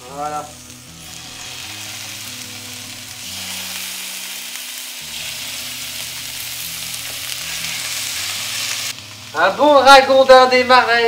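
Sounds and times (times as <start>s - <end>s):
meat sizzling in a frying pan: 0.0s - 11.0s.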